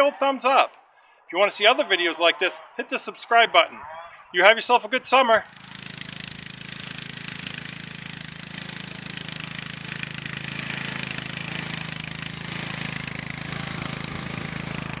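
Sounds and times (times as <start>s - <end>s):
riding lawn mower engine drone: 5.4s - 15.0s.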